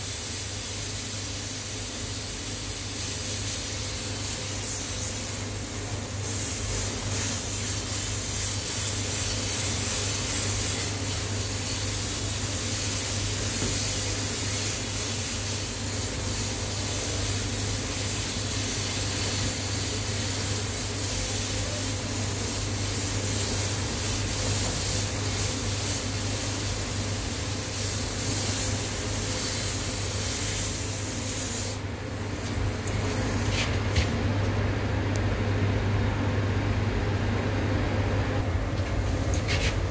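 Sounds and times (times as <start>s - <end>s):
spray gun hissing: 0.0s - 31.9s
steady low hum: 1.2s - 39.9s.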